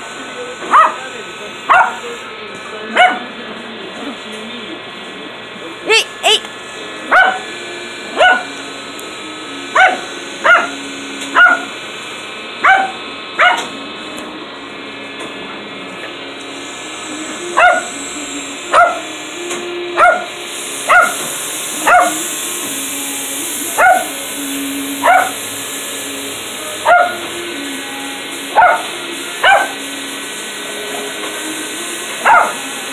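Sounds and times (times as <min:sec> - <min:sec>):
small dog barking: 0:00.7 - 0:01.0, 0:01.7 - 0:02.0, 0:03.0 - 0:03.3, 0:07.1 - 0:07.5, 0:08.2 - 0:08.5, 0:09.8 - 0:11.7, 0:12.6 - 0:13.7, 0:17.6 - 0:17.9, 0:18.7 - 0:19.1, 0:20.0 - 0:20.3, 0:20.9 - 0:21.2, 0:21.8 - 0:22.2, 0:23.8 - 0:24.1, 0:25.0 - 0:25.4, 0:26.8 - 0:27.2, 0:28.6 - 0:29.8, 0:32.2 - 0:32.6
toy helicopter motor whirring: 0:05.9 - 0:06.5, 0:16.5 - 0:32.9.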